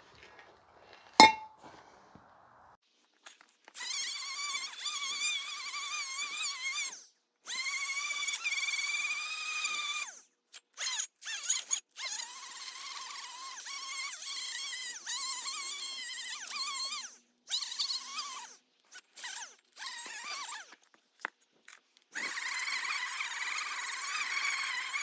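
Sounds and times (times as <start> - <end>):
power tool motor whining: 22.1 - 25.0.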